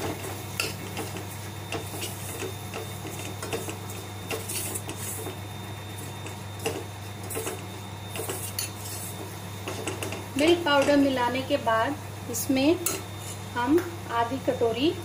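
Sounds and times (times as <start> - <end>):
steady low hum: 0.0 - 15.0
metal spoon scraping a pan: 0.6 - 5.4, 6.2 - 10.2, 12.8 - 13.4.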